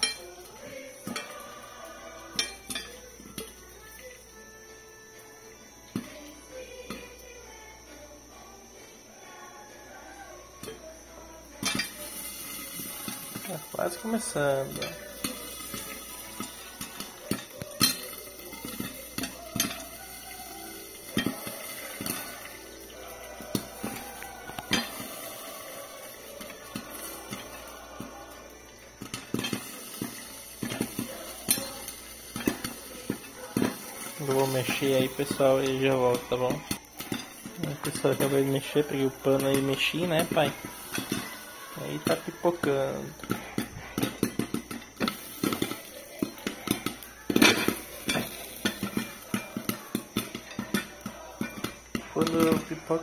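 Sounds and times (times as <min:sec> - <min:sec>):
popcorn popping in a pot: 0:00.0 - 0:53.0
steady hiss: 0:00.0 - 0:53.0.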